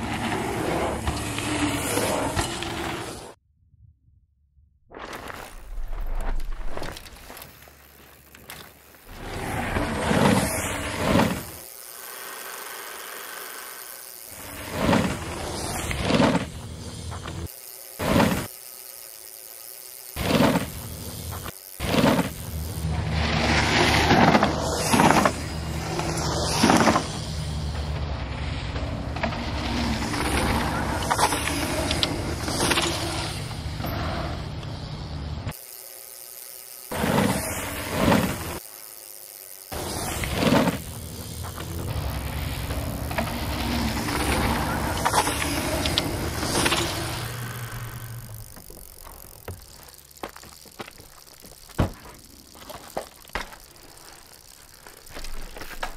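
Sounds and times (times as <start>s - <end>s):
tyres rolling on dirt: 5.1s - 11.7s, 20.2s - 35.5s, 39.7s - 55.9s
bike landing thump: 42.5s - 53.7s.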